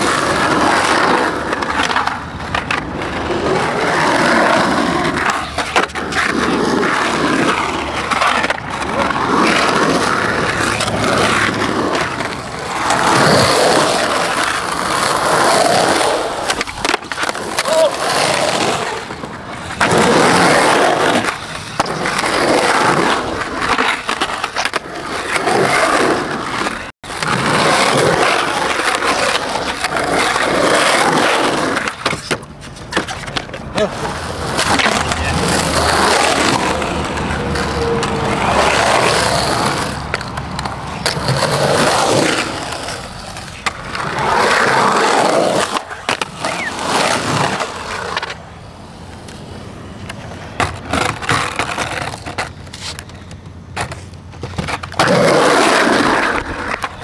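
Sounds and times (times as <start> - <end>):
skateboard clacks: 0.0 - 57.0
skateboard wheels rolling on concrete: 0.0 - 57.0.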